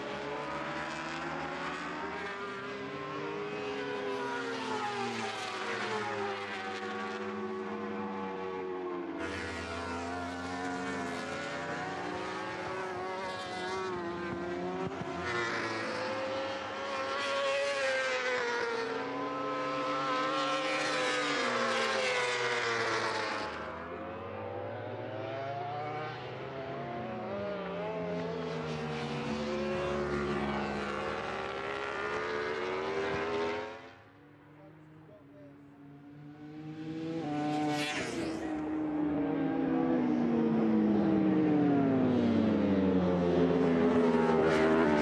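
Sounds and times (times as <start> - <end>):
superbike engines racing: 0.0 - 45.0.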